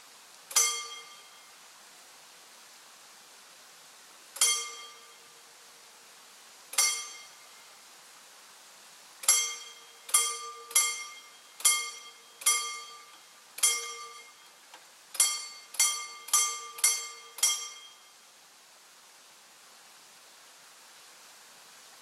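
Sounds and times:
level crossing bell ringing: 0.5s - 1.3s, 4.4s - 5.2s, 6.8s - 7.4s, 9.3s - 14.5s, 15.2s - 18.1s.

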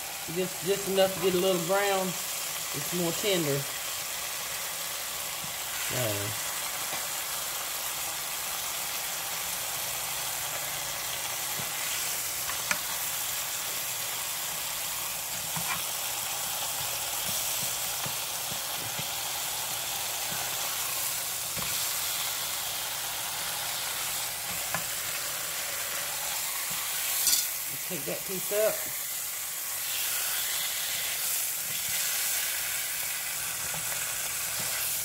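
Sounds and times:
ham sizzling in a hot pan: 0.0s - 35.0s
metal fork clicking against pan: 27.2s - 27.5s.

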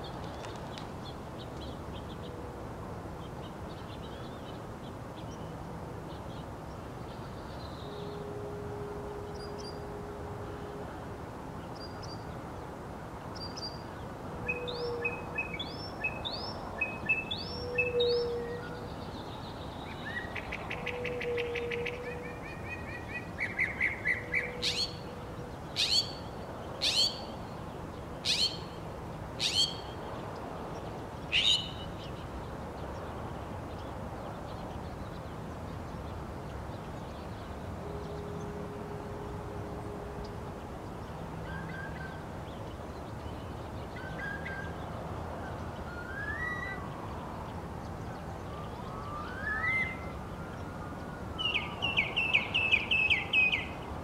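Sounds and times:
steady background noise: 0.0s - 54.0s
mockingbird singing: 20.0s - 25.1s, 25.8s - 27.4s, 28.3s - 28.8s, 29.4s - 30.0s, 31.3s - 32.0s.

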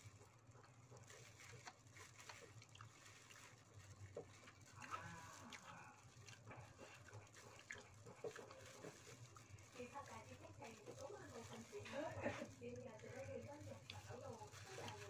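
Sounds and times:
plastic gloves crinkling: 0.0s - 15.0s
wet chewing clicks: 0.0s - 15.0s.

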